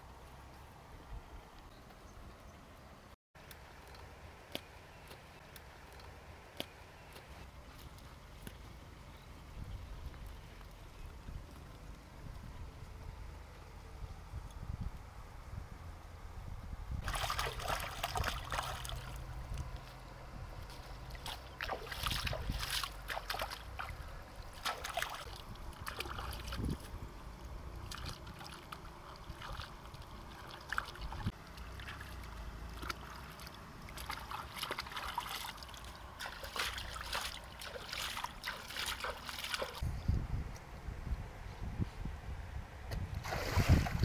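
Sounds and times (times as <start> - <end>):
water splashing: 17.0 - 20.0, 20.6 - 26.9, 27.8 - 39.8, 43.2 - 44.0.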